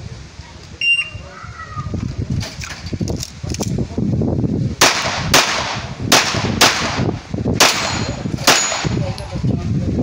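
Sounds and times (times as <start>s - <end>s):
handgun shots: 4.8s - 9.0s.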